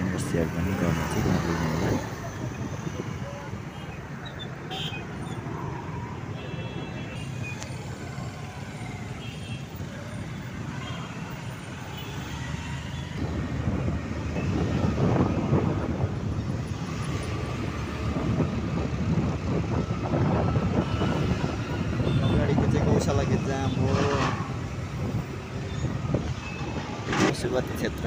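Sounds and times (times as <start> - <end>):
wind buffeting microphone: 0.0 - 3.7, 13.1 - 28.0
surrounding traffic engines: 0.0 - 28.0.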